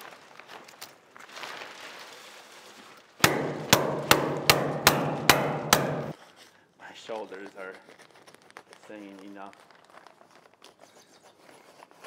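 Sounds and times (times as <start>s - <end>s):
hammer tacker strikes: 3.2s - 6.2s.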